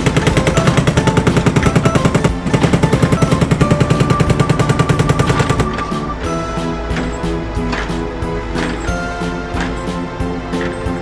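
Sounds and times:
jackhammer hammering: 0.0 - 6.1.

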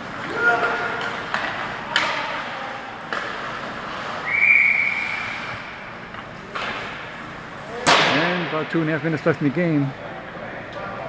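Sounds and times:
hockey sticks and puck knocking: 0.0 - 4.3, 6.1 - 8.5
referee's whistle: 4.2 - 5.6.

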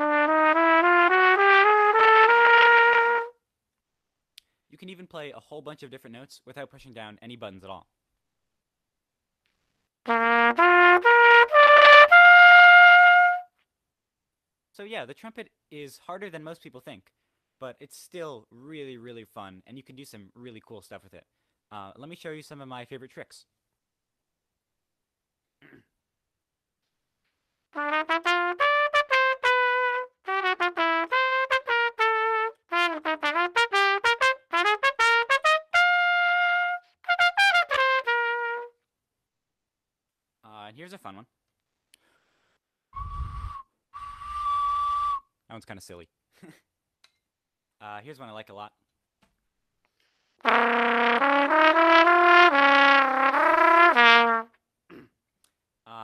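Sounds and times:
solo trumpet: 0.0 - 3.4, 10.1 - 13.6, 27.8 - 38.8, 43.0 - 45.2, 50.4 - 54.6.

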